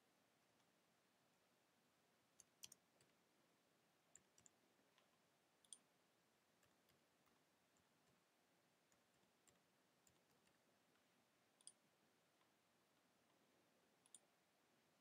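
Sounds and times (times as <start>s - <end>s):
keystrokes on computer keyboard: 2.4s - 3.2s.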